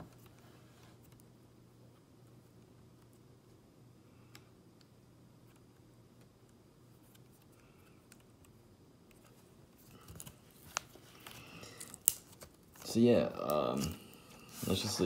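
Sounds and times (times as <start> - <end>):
faint room hum: 0.0 - 15.0
handling rustles: 13.6 - 15.0.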